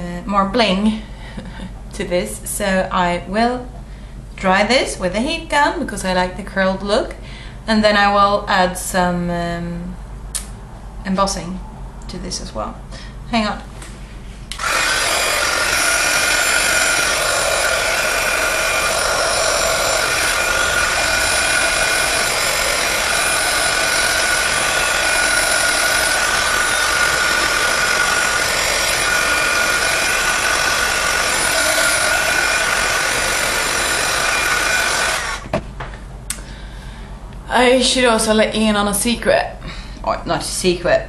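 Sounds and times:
heat gun blowing hiss with whine: 0:14.5 - 0:35.5.

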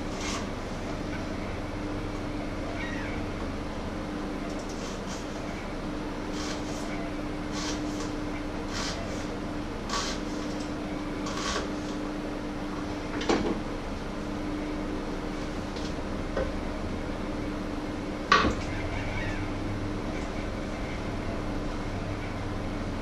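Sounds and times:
steady low hum: 0:00.0 - 0:23.0
knife cutting on wooden board: 0:09.9 - 0:10.5.

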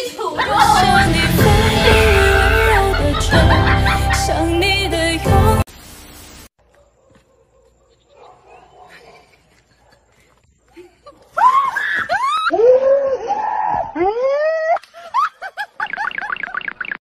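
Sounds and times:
person screaming: 0:00.4 - 0:03.0.

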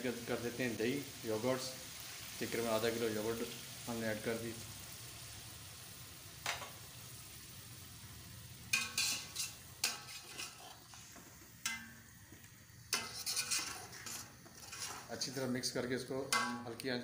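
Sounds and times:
food sizzling in a pot: 0:00.0 - 0:17.0
metal spoon clanking on pot: 0:08.7 - 0:10.8, 0:11.6 - 0:12.0, 0:12.9 - 0:15.1, 0:16.3 - 0:16.8.

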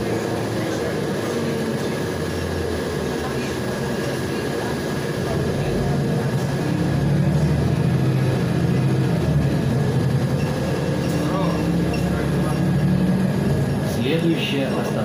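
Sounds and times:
bus engine drone: 0:00.0 - 0:15.0.

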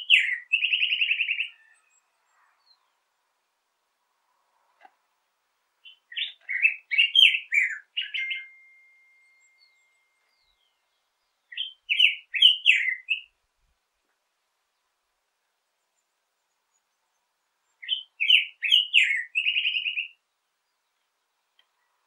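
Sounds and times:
bird singing warbled phrases: 0:00.0 - 0:03.1, 0:05.8 - 0:13.4, 0:15.8 - 0:22.0.

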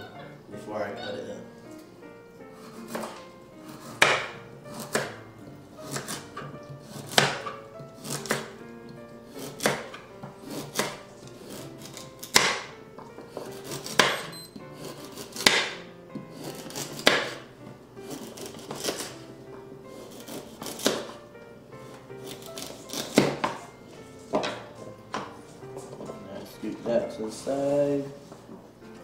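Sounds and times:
background music: 0:00.0 - 0:29.0
knife chopping on wooden board: 0:02.6 - 0:05.2, 0:05.8 - 0:19.2, 0:20.0 - 0:21.2, 0:21.9 - 0:23.7, 0:24.3 - 0:26.2.

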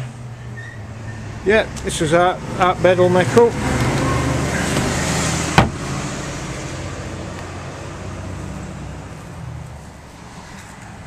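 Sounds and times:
road vehicle rumble: 0:00.0 - 0:11.0
sharp knock: 0:05.6 - 0:05.8.

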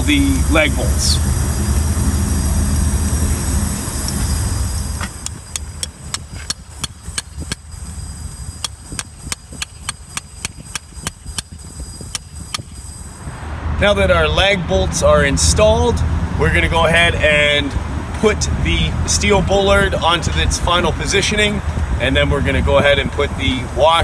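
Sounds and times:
hammer tapping steel bolts: 0:05.2 - 0:07.7, 0:08.6 - 0:12.7.

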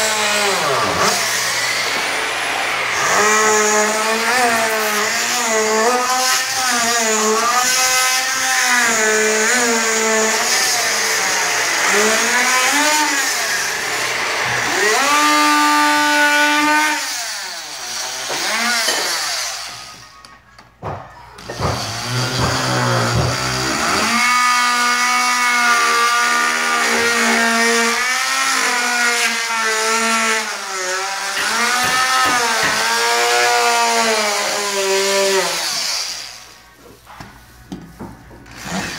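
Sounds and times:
power saw cutting drywall: 0:00.0 - 0:37.2, 0:38.0 - 0:38.9.

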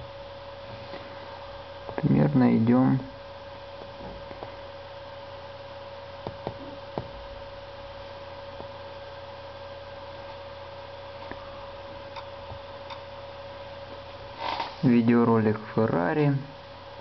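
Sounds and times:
electrical hum with high tone: 0:00.0 - 0:17.0.

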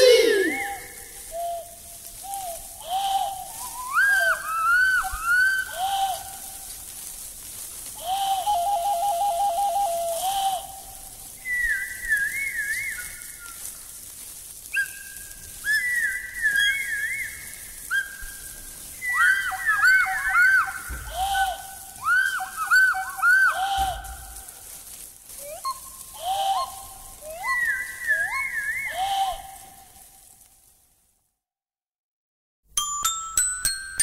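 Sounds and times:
warbling whistle trill: 0:00.0 - 0:06.0, 0:08.1 - 0:13.9, 0:14.7 - 0:24.7, 0:25.3 - 0:30.1
whistles blown: 0:00.0 - 0:06.7, 0:07.9 - 0:30.3.

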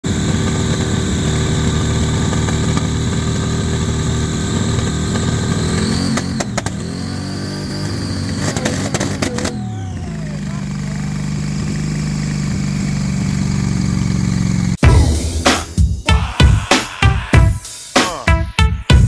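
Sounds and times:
loud lumpy car engine running: 0:00.0 - 0:15.5
sharp engine cracks: 0:07.7 - 0:09.6.

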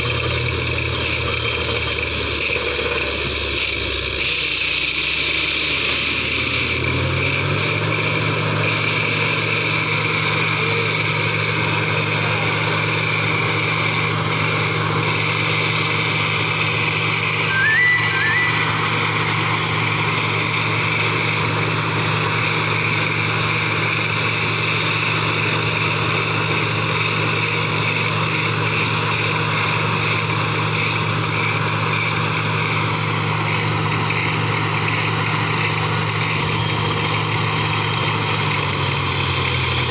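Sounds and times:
air compressor diesel engine: 0:00.0 - 0:39.9
high squeak: 0:17.3 - 0:19.4.

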